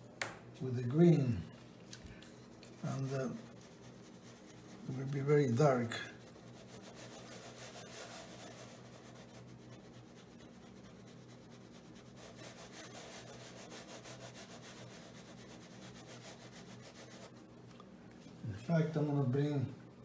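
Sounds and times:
brush rubbing on paper: 0:02.7 - 0:17.5.

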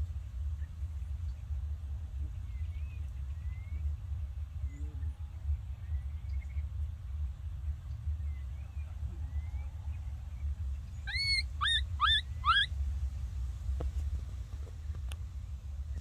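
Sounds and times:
low steady rumble: 0:00.0 - 0:16.0
baby monkey rising calls: 0:11.0 - 0:12.7.

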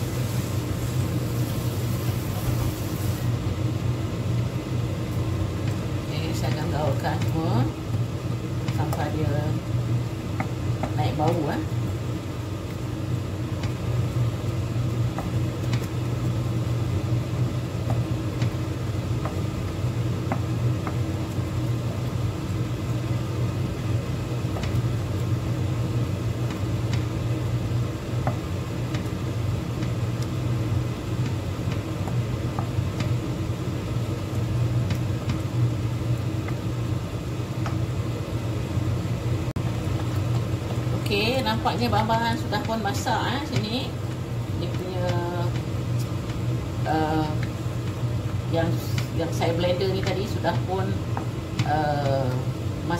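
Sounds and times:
paste sizzling in oil: 0:00.0 - 0:03.4
wooden spatula tapping and scraping: 0:10.3 - 0:11.4, 0:19.2 - 0:19.5, 0:20.2 - 0:21.4, 0:31.2 - 0:33.2.

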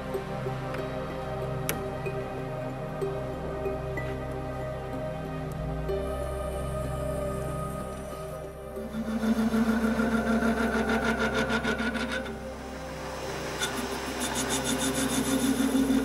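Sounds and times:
lathe motor and gear hum: 0:07.6 - 0:16.0
lathe clatter: 0:08.9 - 0:12.3, 0:13.6 - 0:16.0.

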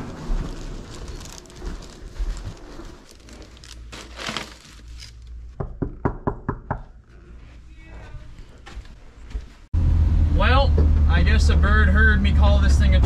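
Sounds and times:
knuckles knocking on a door: 0:05.6 - 0:06.9.

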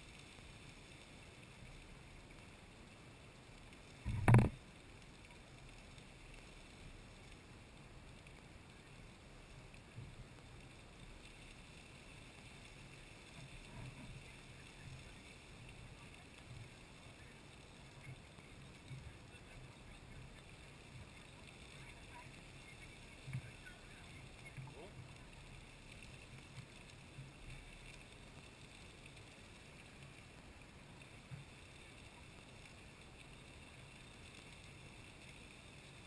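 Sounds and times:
loud thump: 0:04.0 - 0:04.5.

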